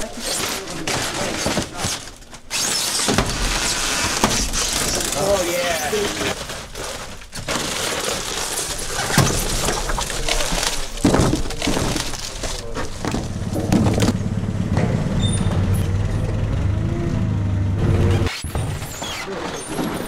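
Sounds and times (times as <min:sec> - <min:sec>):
dry ice crunching and clattering: 0:00.0 - 0:14.2
forklift motor humming: 0:12.3 - 0:18.3.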